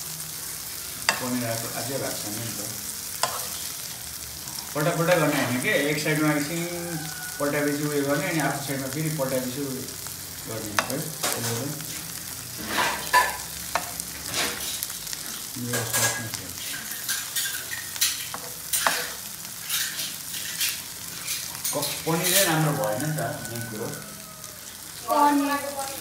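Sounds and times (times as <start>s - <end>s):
food sizzling in oil: 0.0s - 26.0s
metal spoon scraping pan: 3.0s - 3.8s, 4.5s - 6.2s, 12.6s - 14.9s, 15.7s - 22.8s.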